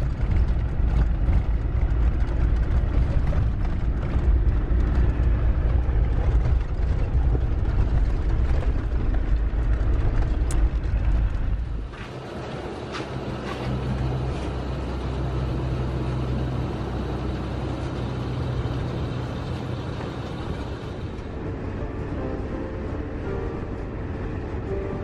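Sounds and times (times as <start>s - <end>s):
vehicle body rattling: 0.0s - 16.3s
engine and road rumble: 0.0s - 25.0s.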